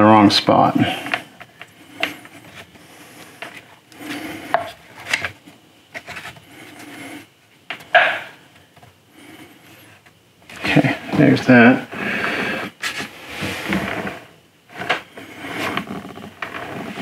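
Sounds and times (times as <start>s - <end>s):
plastic parts scraping and clicking: 3.4s - 6.8s
sharp knock: 7.9s - 8.3s.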